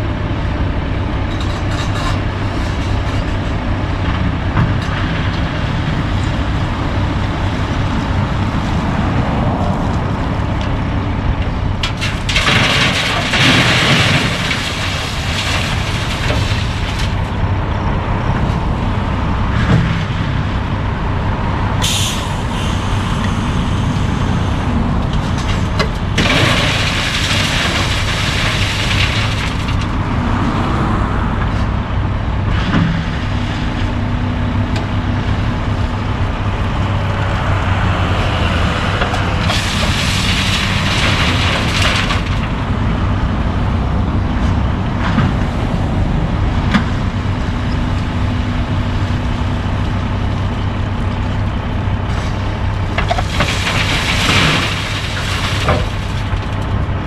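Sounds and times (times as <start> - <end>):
diesel engines running: 0.0 - 57.0
road traffic passing: 0.0 - 57.0.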